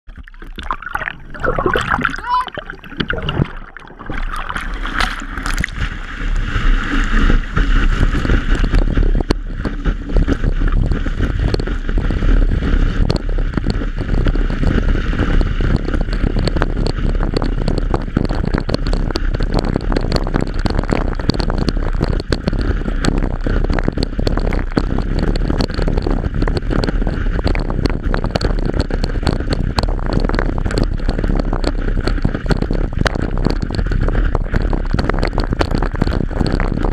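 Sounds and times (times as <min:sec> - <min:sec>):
water gurgling and splashing: 0:00.0 - 0:36.9
rushing water and spray: 0:00.1 - 0:27.6
wind buffeting microphone: 0:00.1 - 0:36.9.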